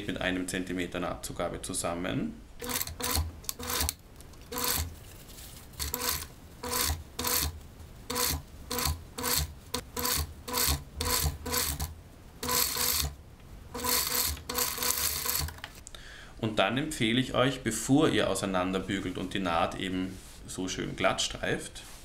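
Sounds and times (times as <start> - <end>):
sewing machine stitching bursts: 2.6 - 4.9, 5.8 - 15.6.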